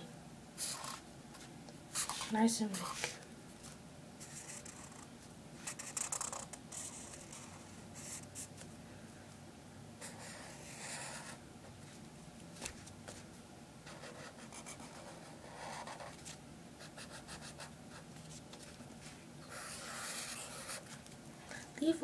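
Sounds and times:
marker scratching on paper: 0:00.6 - 0:01.0, 0:01.9 - 0:03.2, 0:04.2 - 0:08.6, 0:10.0 - 0:11.4, 0:13.9 - 0:18.7, 0:19.4 - 0:21.0.

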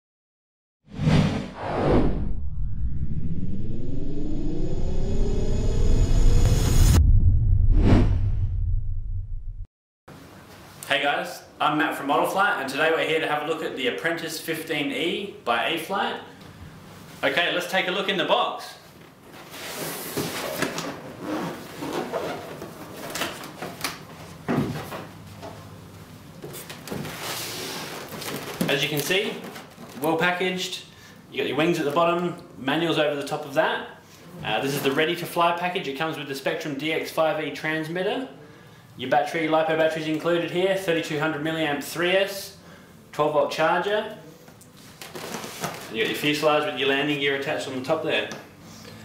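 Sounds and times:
rushing whooshes: 0:00.9 - 0:09.2
low rumble: 0:01.0 - 0:09.7.

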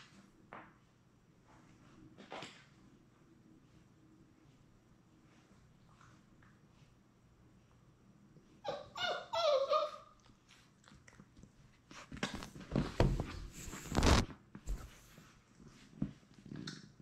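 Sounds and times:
puppy whimpering: 0:08.6 - 0:10.3
scuffing on microphone: 0:11.9 - 0:16.3.

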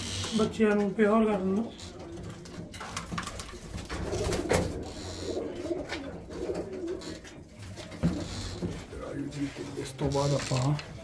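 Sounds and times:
pigeons cooing: 0:03.6 - 0:08.9.

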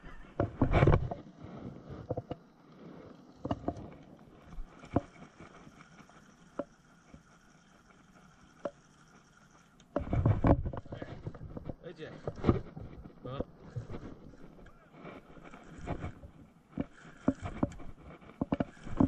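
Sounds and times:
reel rubbing and clattering: 0:00.0 - 0:19.0
fishing reel clicks and knocks: 0:04.8 - 0:10.9, 0:16.8 - 0:19.0.

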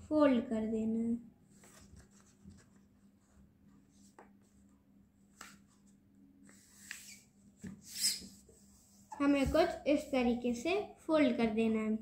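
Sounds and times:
paper sheet rustling and crinkling: 0:01.5 - 0:04.6.

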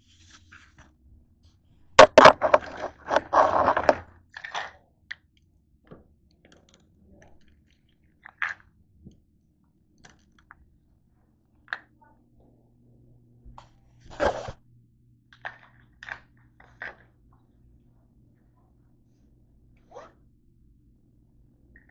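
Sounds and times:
scraping and rubbing: 0:00.0 - 0:00.8, 0:02.0 - 0:04.8, 0:14.0 - 0:14.6.

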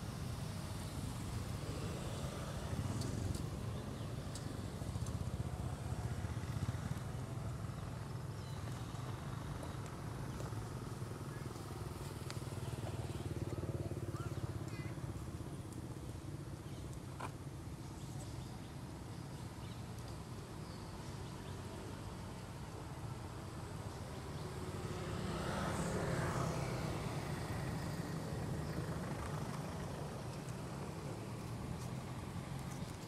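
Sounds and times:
low rumble of motor traffic: 0:00.0 - 0:33.0
vehicle passing: 0:24.4 - 0:32.9.

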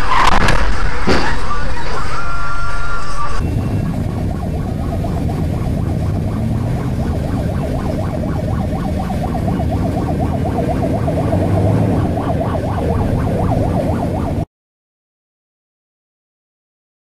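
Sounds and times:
ambulance siren yelping: 0:01.5 - 0:14.5
low rumble of road traffic: 0:03.4 - 0:14.4.

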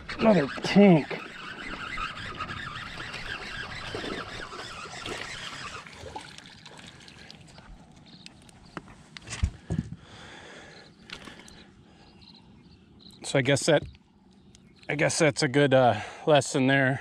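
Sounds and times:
fish thrashing in water: 0:01.5 - 0:08.2.

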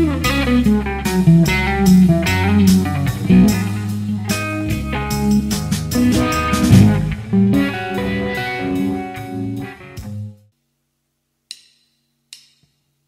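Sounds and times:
electric guitar notes: 0:00.0 - 0:10.4.

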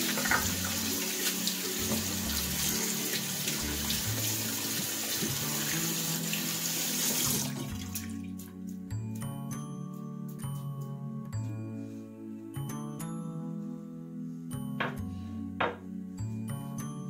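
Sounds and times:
faucet water splashing on hands: 0:00.0 - 0:08.5
soft background music: 0:00.0 - 0:17.0.

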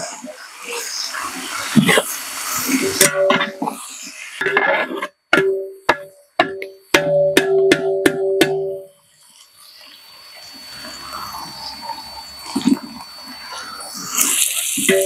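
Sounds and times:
metal ladle knocking on pot: 0:05.4 - 0:08.9
onions sizzling in oil: 0:11.4 - 0:15.0.

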